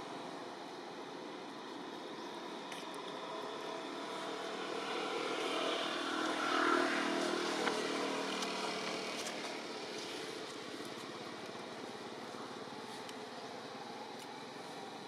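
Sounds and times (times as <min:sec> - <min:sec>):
motor vehicle passing by: 0:03.4 - 0:10.4.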